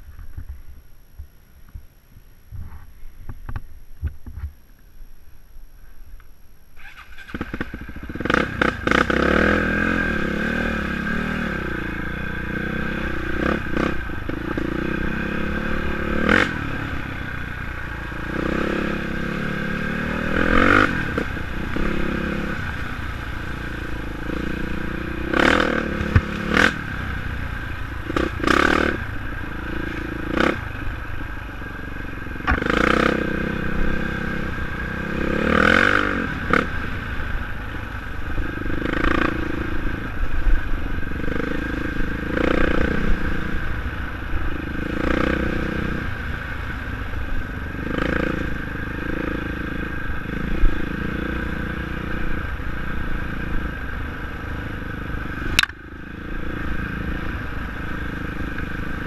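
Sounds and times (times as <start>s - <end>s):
dirt bike engine revving: 6.8s - 40.1s, 41.1s - 46.9s, 47.7s - 54.0s.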